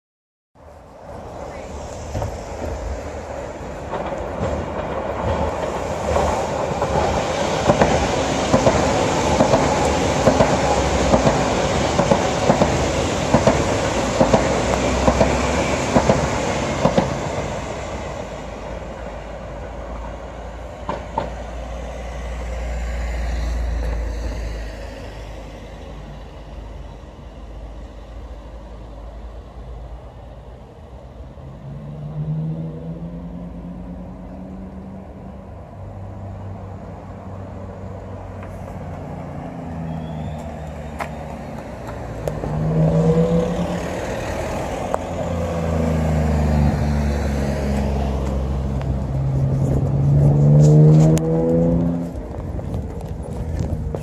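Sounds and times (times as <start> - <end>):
train wheels on rails: 0.7 - 31.4, 34.1 - 54.0
rail joint clacks: 2.0 - 18.6, 20.7 - 21.6.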